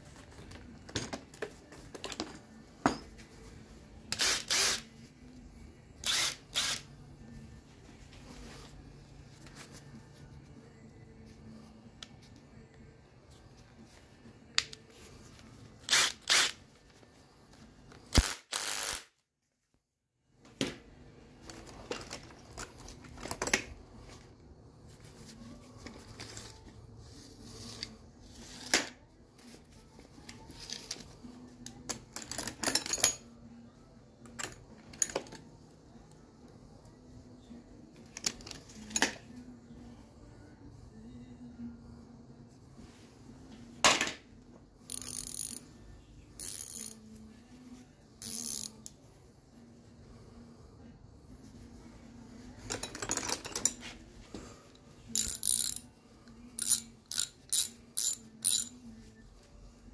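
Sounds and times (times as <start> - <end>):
tools clicking and clinking: 31.6 - 33.3, 34.2 - 35.5, 44.9 - 45.7, 46.4 - 47.2, 48.2 - 49.0, 52.6 - 54.0, 55.1 - 55.9, 56.6 - 58.8
tools rattling: 31.9 - 33.3, 44.9 - 45.7, 46.4 - 47.0, 52.6 - 54.0, 55.2 - 55.9, 56.6 - 58.8.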